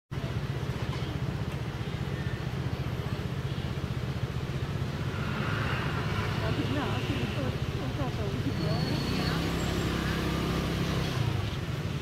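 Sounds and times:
scooter engine idling: 0.2s - 5.1s.

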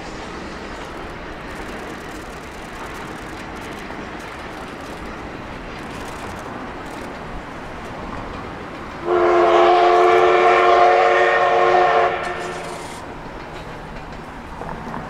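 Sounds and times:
passing train: 0.0s - 15.0s
steam whistle blast: 9.0s - 12.8s.

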